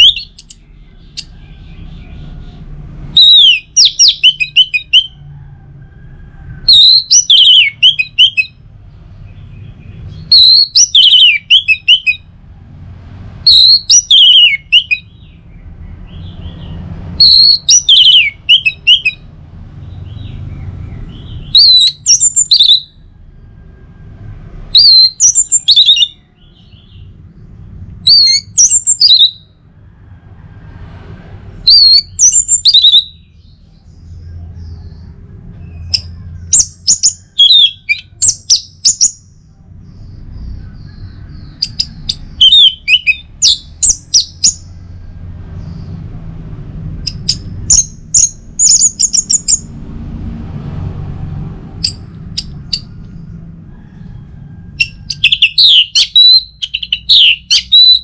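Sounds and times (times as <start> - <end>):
thrush whistled song: 0.0 - 1.4, 3.1 - 5.2, 6.6 - 8.6, 9.6 - 12.3, 13.4 - 15.4, 16.1 - 19.3, 20.2 - 23.0, 24.7 - 27.1, 28.0 - 29.5, 31.7 - 33.3, 35.7 - 39.3, 40.9 - 44.7, 54.8 - 58.0.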